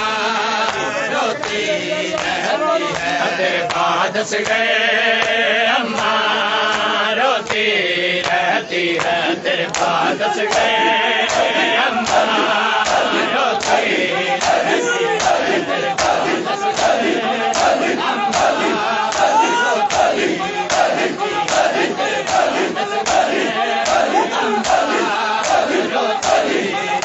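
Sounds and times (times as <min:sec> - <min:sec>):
men chanting a lament: 0:00.0 - 0:27.0
hands slapping bare chests: 0:08.2 - 0:26.6.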